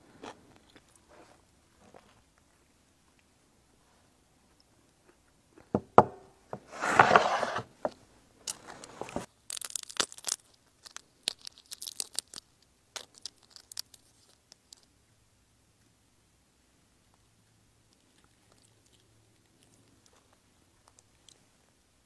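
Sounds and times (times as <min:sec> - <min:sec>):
crayfish shell cracking: 0:09.2 - 0:14.9
small shell crackles and snaps: 0:09.2 - 0:14.9, 0:17.9 - 0:21.4
shell tearing: 0:09.5 - 0:14.8.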